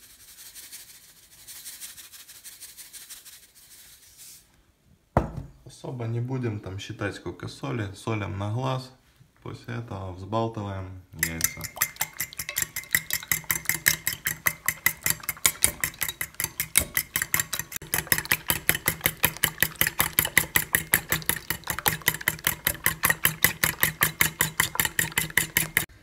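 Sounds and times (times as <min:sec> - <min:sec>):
fork beating eggs in metal bowl: 0:11.2 - 0:26.0.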